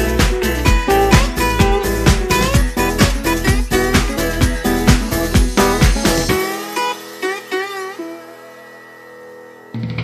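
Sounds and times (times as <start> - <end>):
low bass tone: 0.0 - 6.4
background music held notes: 0.0 - 10.0.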